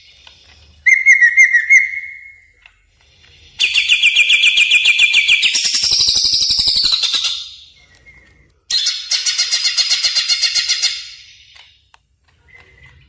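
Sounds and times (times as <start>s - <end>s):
bird singing rapid high notes: 0.8s - 2.4s.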